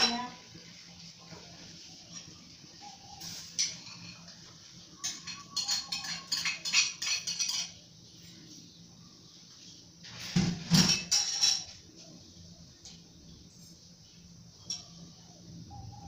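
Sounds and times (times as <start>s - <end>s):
kitchenware clatter: 0.0s - 0.4s, 2.0s - 8.3s, 10.1s - 11.9s, 14.6s - 15.2s
metal spoon clinking on ceramic plate: 5.0s - 7.8s.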